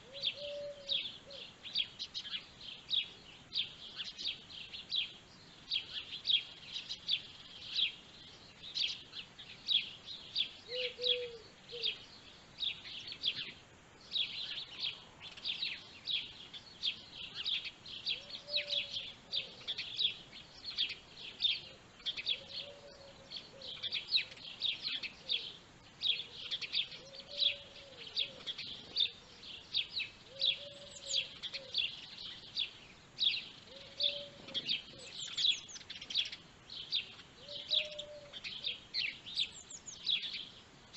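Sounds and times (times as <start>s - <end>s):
small birds chirping: 0.0s - 40.9s.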